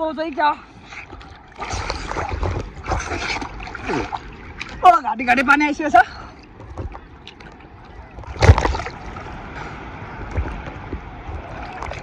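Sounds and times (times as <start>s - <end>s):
sea water sloshing: 0.0s - 12.0s
loud water splash: 8.3s - 9.4s.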